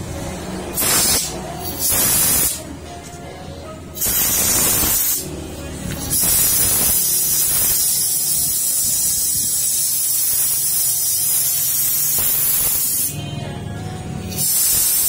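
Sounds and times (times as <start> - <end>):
static-like hiss: 4.0 - 5.2, 6.2 - 13.2.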